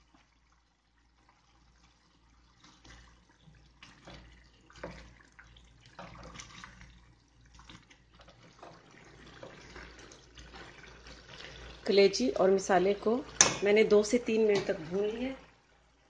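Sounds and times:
food sizzling in oil: 1.9 - 16.0
spatula scraping a pan: 8.2 - 11.8.

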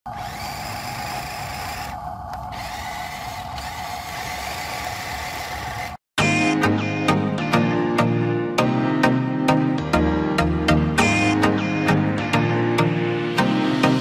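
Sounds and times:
toy truck electric motor whining: 0.1 - 6.0.

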